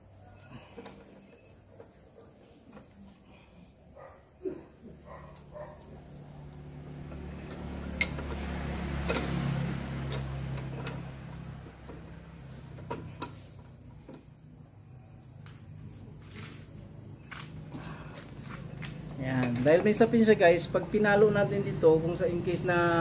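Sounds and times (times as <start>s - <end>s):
metal clinks and knocks: 7.0s - 14.3s.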